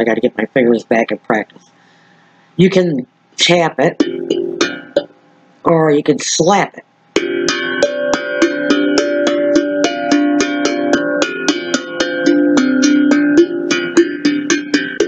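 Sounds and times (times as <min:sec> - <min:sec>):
steel tongue drum notes: 0:03.9 - 0:05.3, 0:07.2 - 0:15.0.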